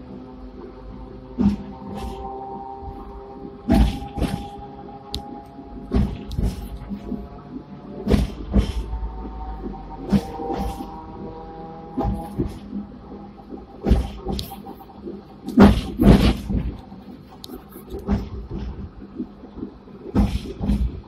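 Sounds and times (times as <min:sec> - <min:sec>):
tram whine: 0:00.0 - 0:21.0
sharp knocks and rattles: 0:13.8 - 0:16.9.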